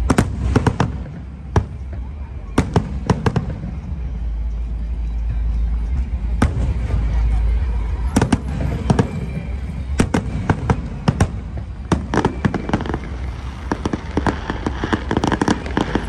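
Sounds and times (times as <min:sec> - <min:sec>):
fireworks crackling: 0:00.0 - 0:16.0.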